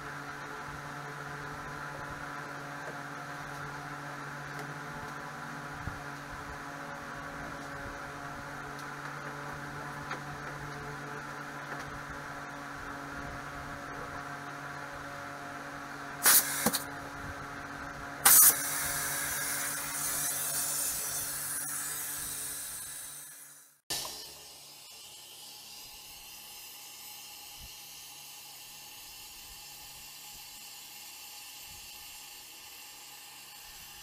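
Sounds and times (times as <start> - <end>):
steady hum: 0.0 - 34.0
air hissing through venturi: 16.2 - 16.9, 18.2 - 27.8
loud air blasts: 16.2 - 16.9, 18.2 - 26.0.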